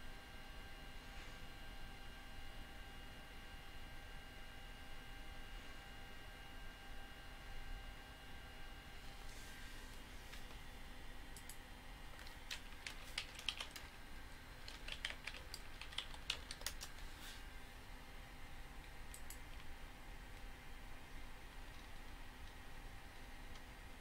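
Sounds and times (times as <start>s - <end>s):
faint keyboard keystrokes: 12.2s - 13.9s, 14.6s - 17.0s.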